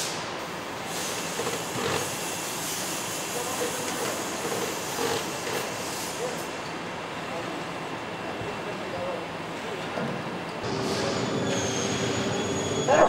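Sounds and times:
short hissing bursts: 0:00.0 - 0:06.2
steady mechanical hiss and hum: 0:00.0 - 0:13.0.

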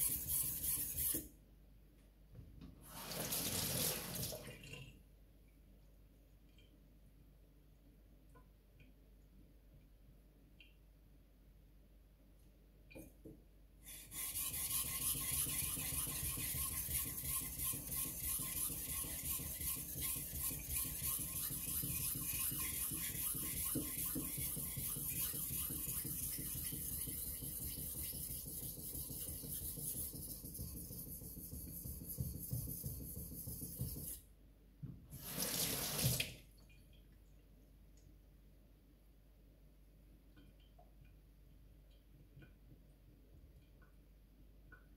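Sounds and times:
knife scraping on whetstone: 0:13.9 - 0:31.0.

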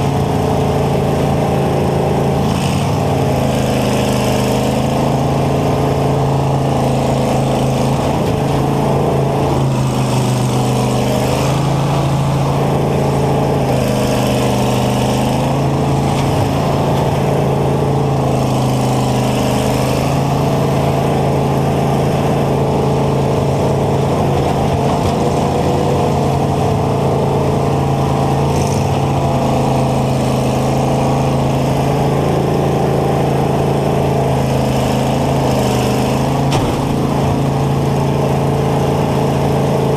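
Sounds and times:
combine engine running: 0:00.0 - 0:39.9.

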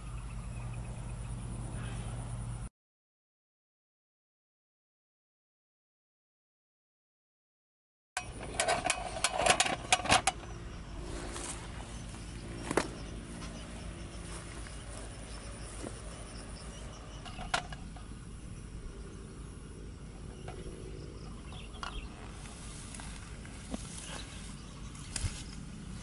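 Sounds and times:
faint insects: 0:00.0 - 0:02.7, 0:08.2 - 0:26.0
low rumble: 0:10.7 - 0:26.0.

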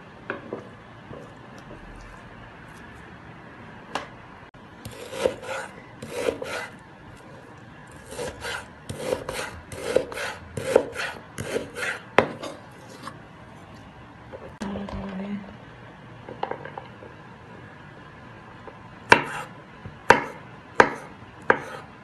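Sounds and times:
knife sawing meat on wooden board: 0:04.8 - 0:06.8, 0:07.9 - 0:13.2, 0:19.1 - 0:19.5.

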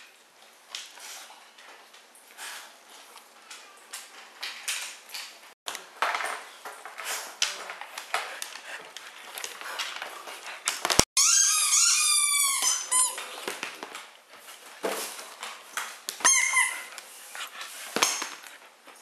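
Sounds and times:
dogs chewing toys: 0:06.6 - 0:19.0
squeaky toy squeaks: 0:11.2 - 0:13.2, 0:16.2 - 0:17.0.

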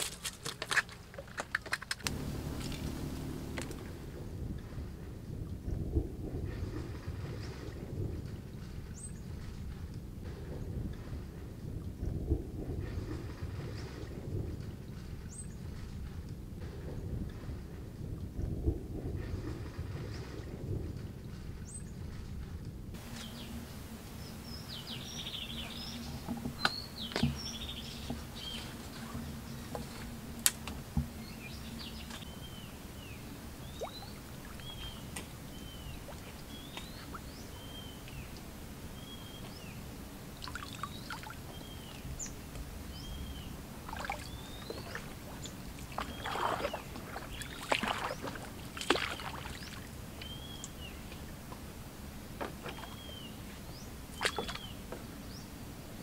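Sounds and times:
paddle splashing water: 0:00.0 - 0:04.8, 0:23.0 - 0:39.6, 0:40.3 - 0:55.2
bird calling: 0:02.1 - 0:04.3, 0:23.0 - 0:30.4, 0:31.1 - 0:51.3, 0:52.6 - 0:55.5.

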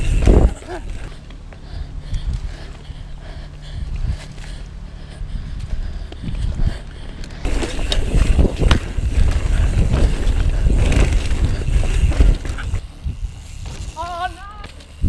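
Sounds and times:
wind rumbling on microphone: 0:00.0 - 0:14.0
tyres rolling on dirt: 0:07.1 - 0:15.0
bike knocking over bumps: 0:07.5 - 0:12.8.

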